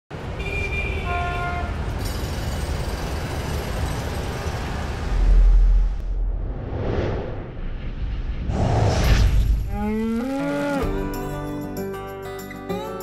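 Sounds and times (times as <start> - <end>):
traffic rumble: 0.1 - 6.4
vehicle horn: 0.3 - 1.8.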